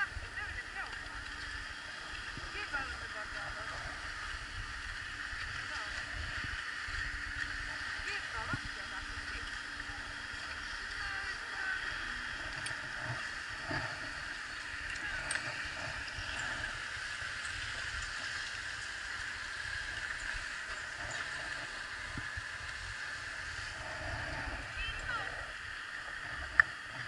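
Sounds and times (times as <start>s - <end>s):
skis sliding over packed snow: 0.0s - 27.0s
wind rumbling on microphone: 0.0s - 27.0s.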